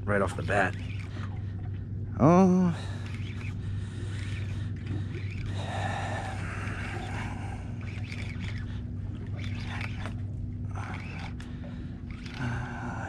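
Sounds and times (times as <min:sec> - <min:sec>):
outboard motor idling: 0:00.0 - 0:13.0.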